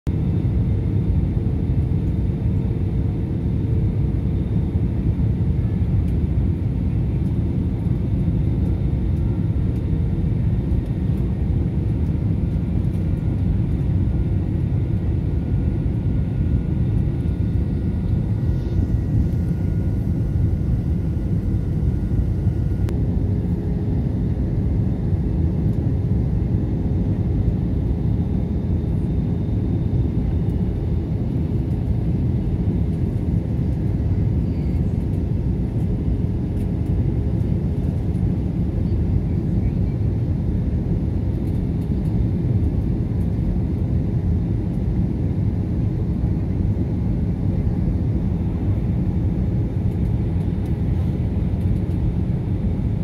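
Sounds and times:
airliner cabin engine rumble: 0.1 - 53.0.

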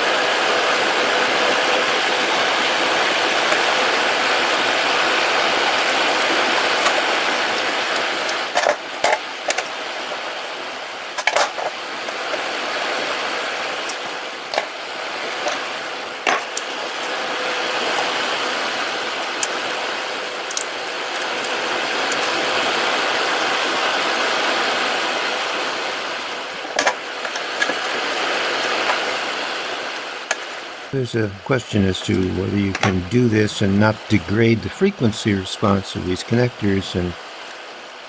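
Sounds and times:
steady hiss: 0.0 - 38.0
wire and pliers clicking on metal: 20.5 - 21.5.

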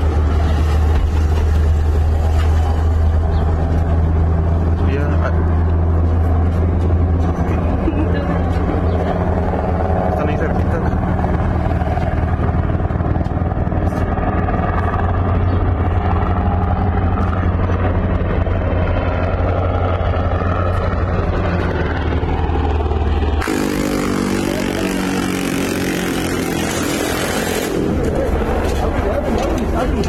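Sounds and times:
vehicle engine droning: 0.0 - 30.0
buzzing tone: 23.4 - 27.9.

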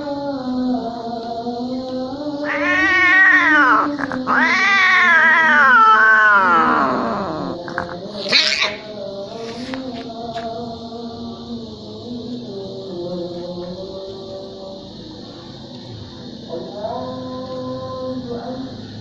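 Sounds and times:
cats caterwauling: 2.2 - 9.6
cat hissing: 2.4 - 9.9.

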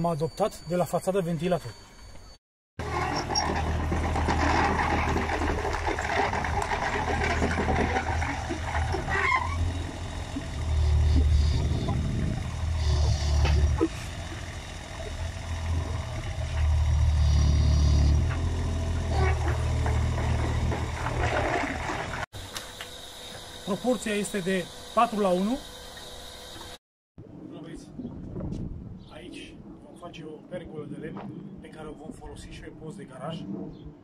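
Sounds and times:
excavator engine and hydraulics: 1.6 - 26.8.

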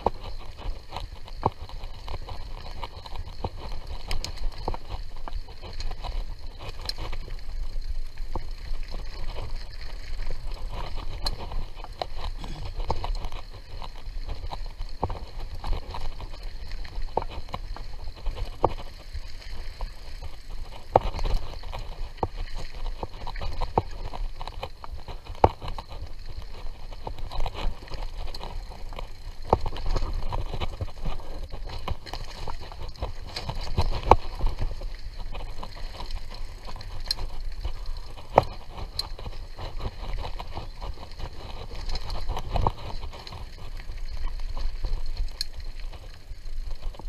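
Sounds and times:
bike rattling and knocking: 0.0 - 47.0
bike tyres rumbling on dirt: 0.0 - 47.0.

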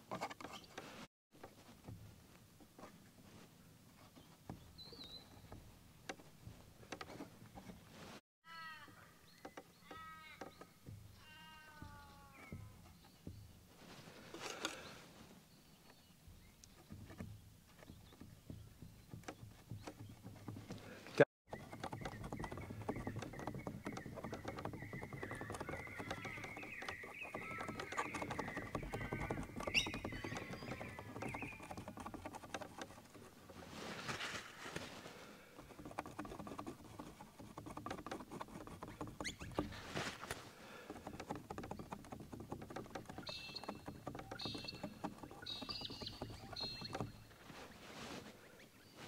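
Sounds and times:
palette knife scraping paint: 20.8 - 34.1, 34.7 - 48.2.

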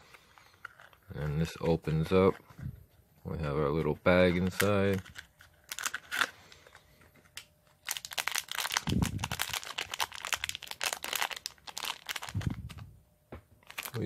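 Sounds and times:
foil bag crinkling: 4.2 - 7.0, 7.8 - 12.8, 13.6 - 14.0.

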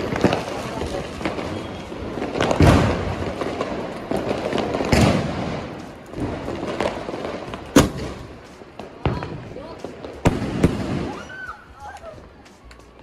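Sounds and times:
loud firework thumps: 0.0 - 11.3
firecrackers crackling: 0.0 - 13.0
sharp firework bang: 2.4 - 3.2, 4.9 - 5.7, 7.7 - 8.2.

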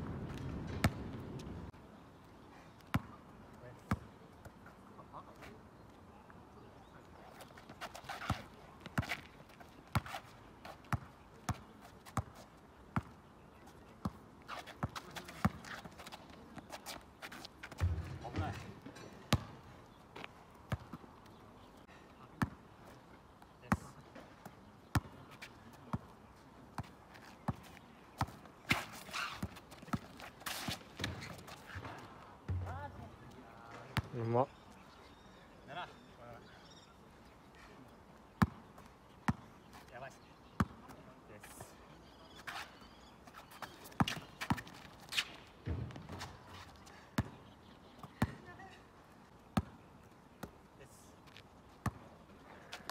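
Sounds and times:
basketball bouncing on asphalt: 0.0 - 1.5, 2.9 - 3.2, 7.9 - 13.2, 14.0 - 16.8, 17.4 - 18.7, 19.3 - 19.6, 20.2 - 21.1, 23.7 - 26.2, 26.8 - 34.2, 38.4 - 39.5, 40.5 - 40.9, 43.4 - 48.8, 49.6 - 49.8, 51.8 - 52.9.

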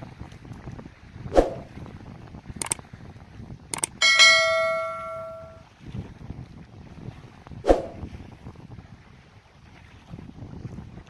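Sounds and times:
wind rumble on microphone: 0.0 - 11.0
notification bell ding: 3.8 - 5.6
sharp click effects: 3.8 - 5.6.

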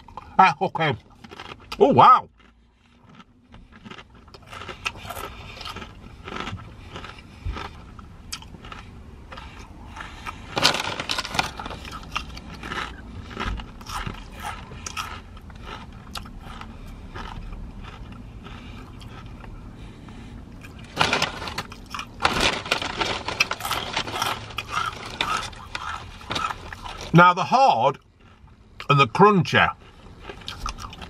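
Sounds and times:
crisps being crunched and chewed: 0.0 - 19.6, 20.6 - 31.0
crisp packet crinkling: 10.5 - 13.4, 20.9 - 27.2.

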